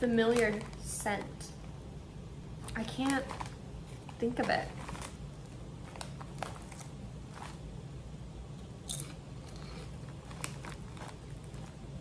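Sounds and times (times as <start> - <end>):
air conditioner hum: 0.0 - 12.0
chip crunching: 2.6 - 7.8, 8.6 - 12.0.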